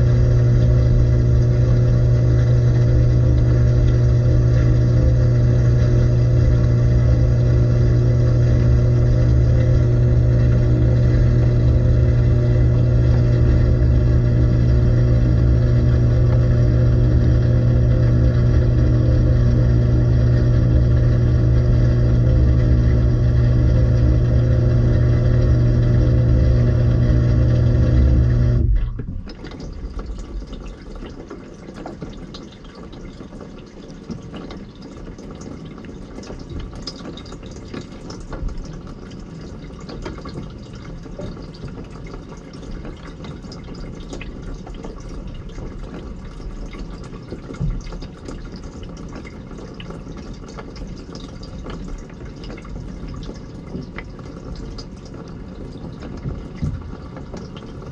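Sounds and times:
dishwasher pump humming: 0.0s - 57.9s
water dripping and trickling: 0.0s - 57.9s.

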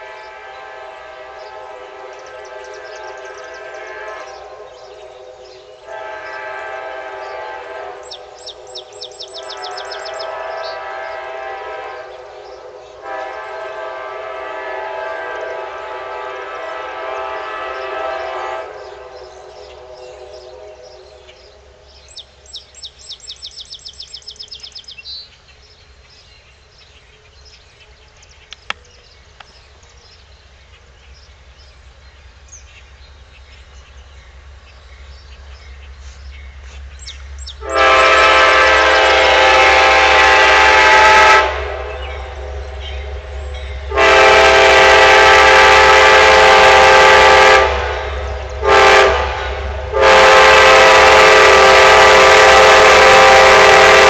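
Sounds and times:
locomotive air horn blasts: 0.0s - 8.4s, 9.3s - 21.3s, 37.6s - 54.0s
approaching train rumble: 0.0s - 54.0s.

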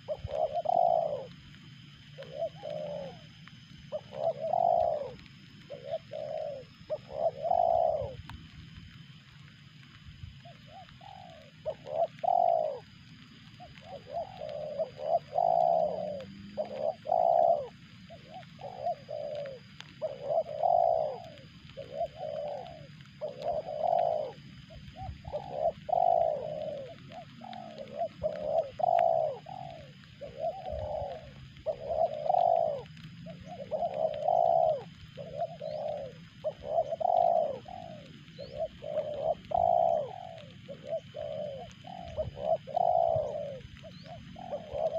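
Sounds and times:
dove cooing: 0.0s - 44.9s.

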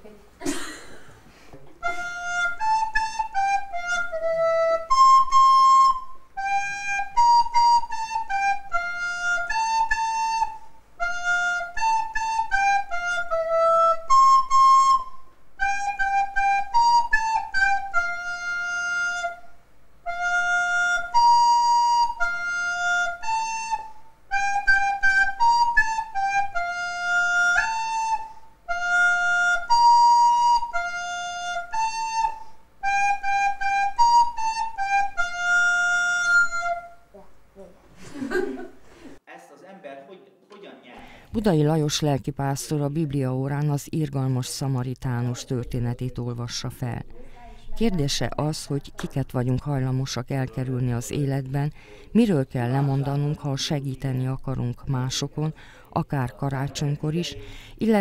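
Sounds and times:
child playing recorder: 1.8s - 37.2s.

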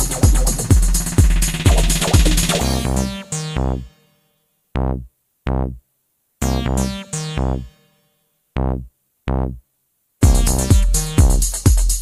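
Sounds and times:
synthesizer and keyboard phrases: 0.0s - 0.8s, 1.5s - 4.2s, 6.4s - 8.0s.

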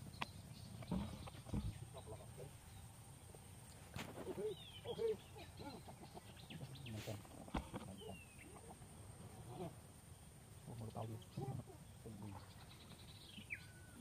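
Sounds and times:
high bird chirps: 11.0s - 14.0s.

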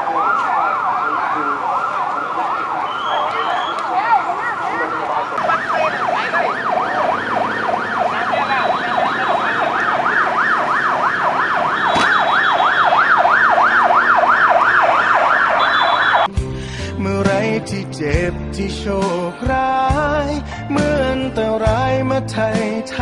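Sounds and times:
ambulance siren yelping: 0.0s - 16.3s.

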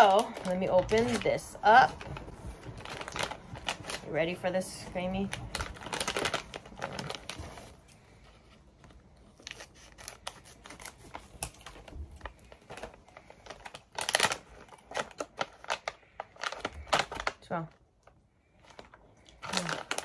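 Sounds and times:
scissors snipping plastic bag: 0.0s - 4.2s, 12.7s - 17.3s, 19.4s - 20.0s
plastic packaging crinkling: 0.0s - 20.0s.

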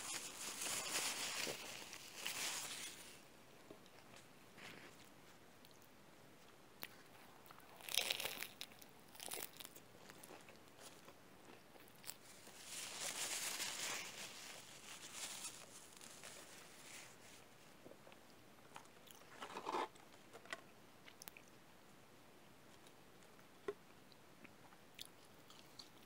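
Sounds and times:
crunchy chewing: 5.6s - 16.6s, 24.6s - 26.0s.

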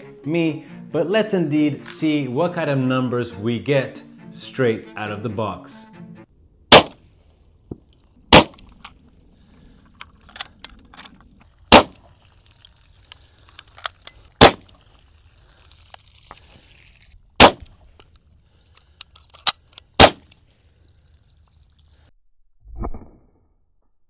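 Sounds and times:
air pistol shots: 6.7s - 7.0s, 8.3s - 8.8s, 11.7s - 12.1s, 14.4s - 14.7s, 17.4s - 17.8s, 20.0s - 20.4s.

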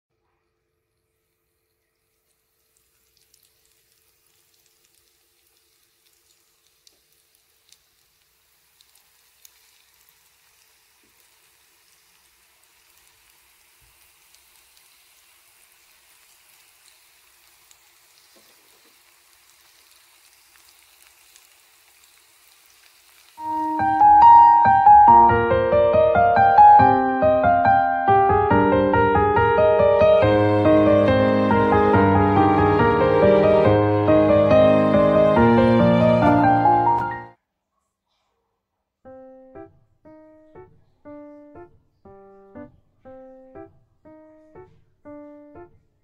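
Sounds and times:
food deep-frying in hot oil: 0.9s - 24.7s
oil popping and crackling: 1.0s - 24.2s.

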